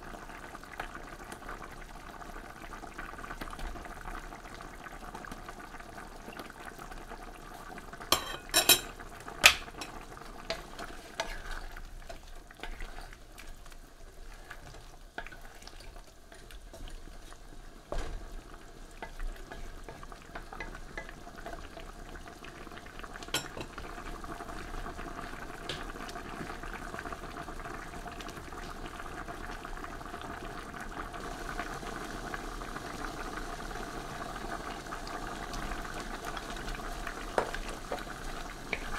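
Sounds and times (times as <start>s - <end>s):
stew bubbling: 0.0s - 38.9s
metal spoon clinking on pan: 8.1s - 10.0s, 23.3s - 23.7s.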